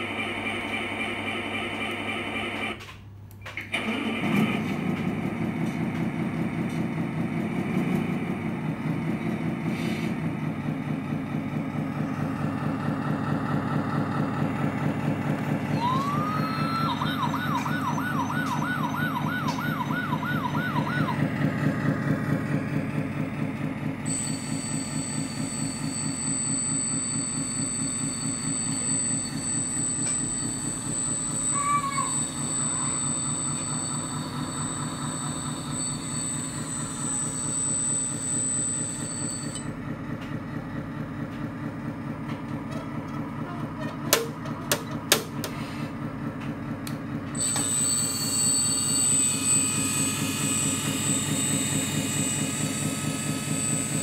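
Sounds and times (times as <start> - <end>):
diesel truck engine idling: 4.8 - 24.1
warbling siren-like tone: 15.4 - 23.0, 24.1 - 39.7, 47.4 - 54.0.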